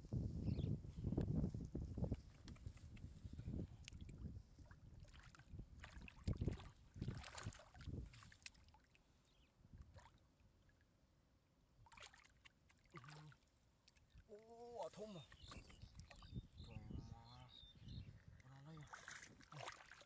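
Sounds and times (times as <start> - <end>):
hands splashing in water: 5.0 - 9.0, 11.8 - 16.2, 18.8 - 20.0.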